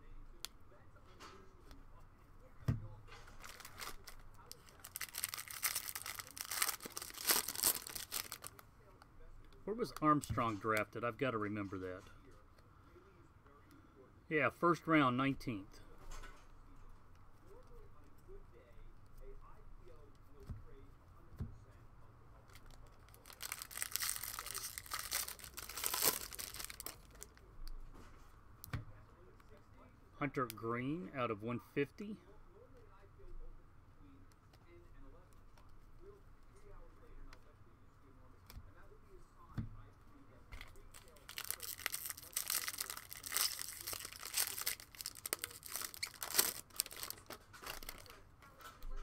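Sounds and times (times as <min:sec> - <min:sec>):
foil wrapper tearing and crinkling: 0:03.3 - 0:08.6, 0:22.8 - 0:27.3, 0:40.8 - 0:48.2.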